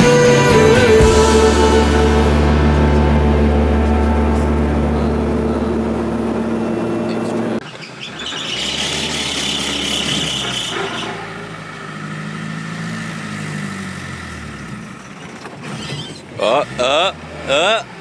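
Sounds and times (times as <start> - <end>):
turboprop engine drone: 0.0 - 7.6
small vehicle engine and road noise: 0.0 - 18.0.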